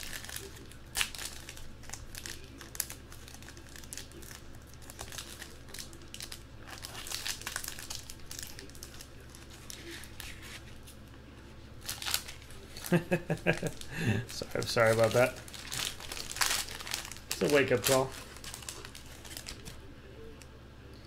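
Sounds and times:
plastic wrap crinkling and tearing: 0.0 - 11.1, 11.7 - 19.9.

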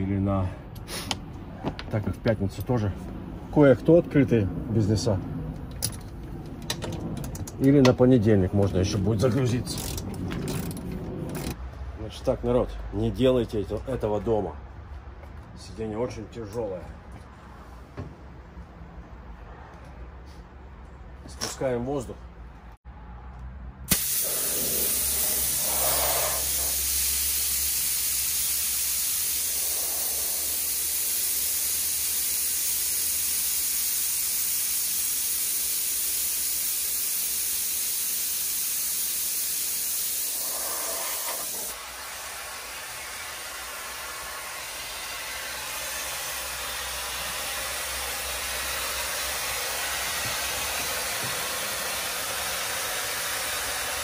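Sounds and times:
compressed air hissing out: 0.8 - 1.2, 23.9 - 54.0.

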